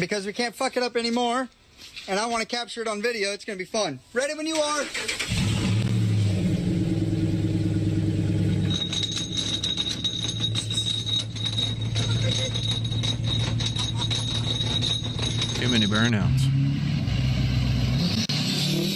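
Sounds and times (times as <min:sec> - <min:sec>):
truck engine starting and running: 0:04.6 - 0:18.9
differential rapid clattering: 0:08.5 - 0:16.4.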